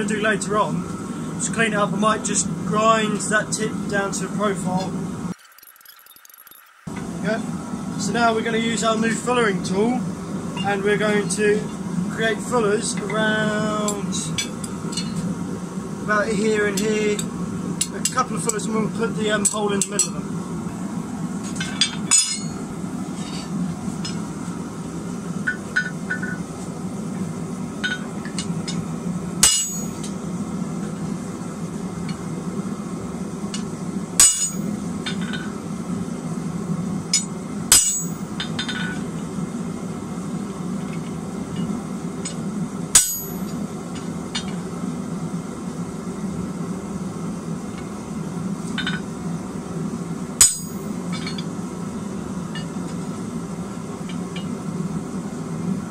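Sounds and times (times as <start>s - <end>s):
forge humming: 0.0s - 55.9s
metallic clanks on anvil: 21.6s - 22.6s, 29.4s - 30.1s, 34.2s - 35.4s, 37.2s - 39.0s, 43.0s - 43.6s, 50.4s - 51.4s.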